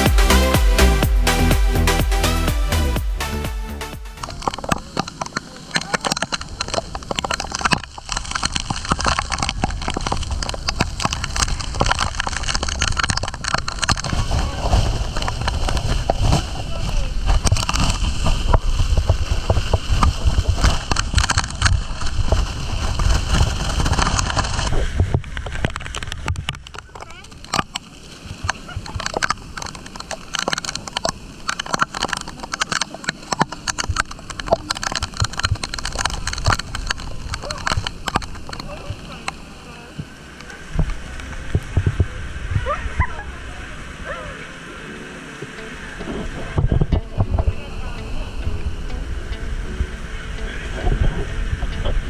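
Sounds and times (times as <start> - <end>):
low rumble: 0.0 - 27.4, 33.6 - 44.9
hard rain pelting plastic: 0.0 - 52.0
wind: 3.8 - 52.0.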